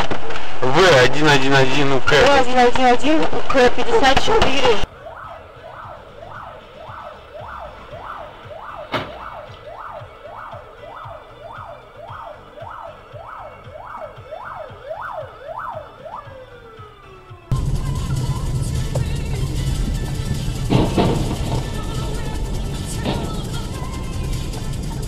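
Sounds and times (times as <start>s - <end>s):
electronic siren yelping: 4.8s - 19.5s.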